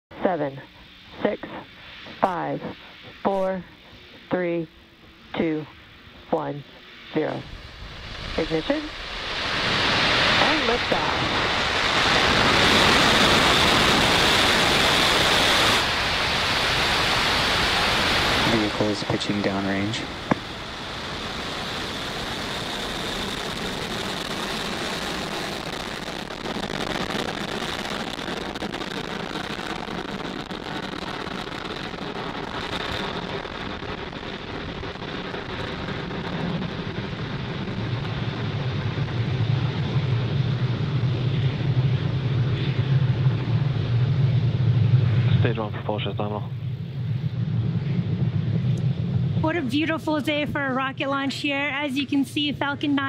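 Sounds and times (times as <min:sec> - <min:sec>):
low rumble: 0:00.0 - 0:53.0
rocket engines rushing: 0:00.1 - 0:53.0.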